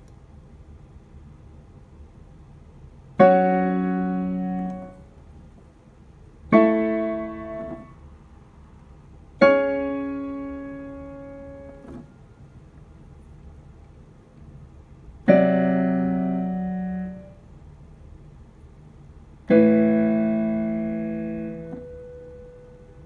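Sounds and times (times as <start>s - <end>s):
piano chords: 3.1s - 5.1s, 6.2s - 8.1s, 9.3s - 12.1s, 15.0s - 17.4s, 19.3s - 23.0s.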